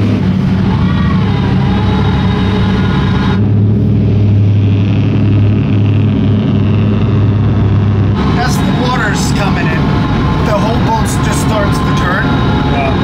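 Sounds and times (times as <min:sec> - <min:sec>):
motorboat engine droning: 0:00.0 - 0:13.0.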